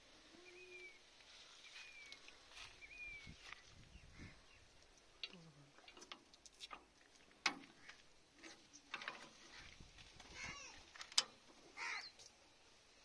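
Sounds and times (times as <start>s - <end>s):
metal hose couplers clicking: 11.0s - 11.4s.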